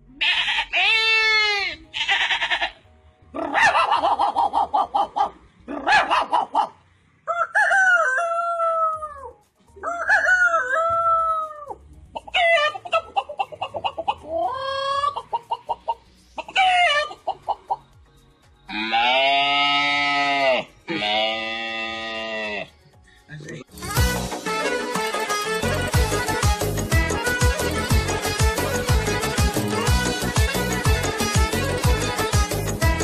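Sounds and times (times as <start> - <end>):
man clucking like a chicken: 3.4 - 9.2, 9.8 - 17.8
man imitating rooster crows: 7.3 - 11.8.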